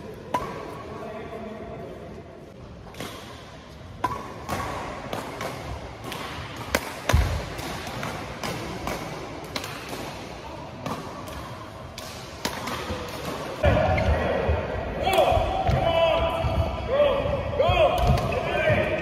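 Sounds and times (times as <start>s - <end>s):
rackets striking shuttlecock: 2.8s - 13.7s.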